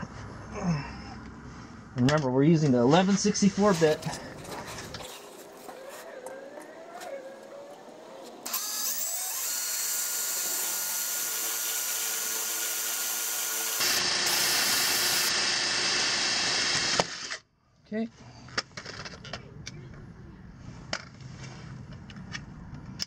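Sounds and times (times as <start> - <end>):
cordless drill whining: 8.4 - 17.4
drill bit cutting into metal: 8.4 - 17.4.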